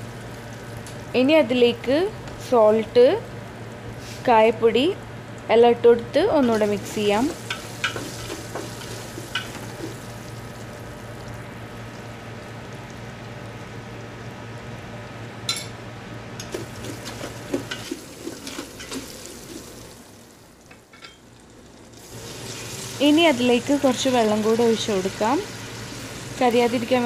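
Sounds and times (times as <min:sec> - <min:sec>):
potatoes sizzling in oil: 0:06.4 - 0:15.2, 0:16.4 - 0:20.4, 0:21.3 - 0:27.0.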